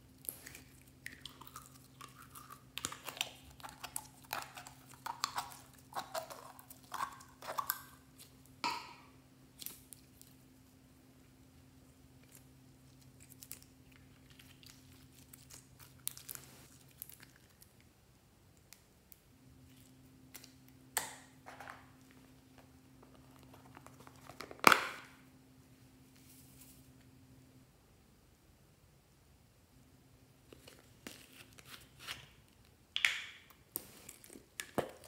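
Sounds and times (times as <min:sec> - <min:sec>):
sticky slime crinkling: 0:00.1 - 0:08.7, 0:12.1 - 0:17.9, 0:21.8 - 0:25.2.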